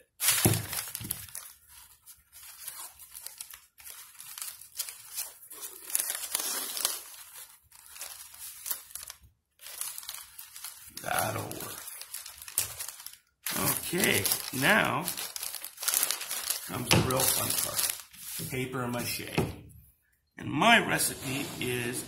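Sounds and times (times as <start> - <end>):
newspaper crinkling: 0.0 - 19.4
masking tape tearing: 2.8 - 7.9.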